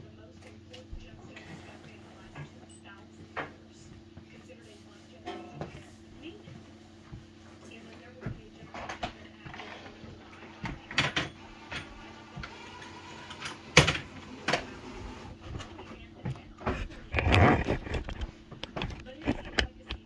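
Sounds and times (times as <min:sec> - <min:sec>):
objects knocking and clattering: 0:08.2 - 0:12.6, 0:15.4 - 0:20.0
scraping clatter: 0:16.6 - 0:20.0.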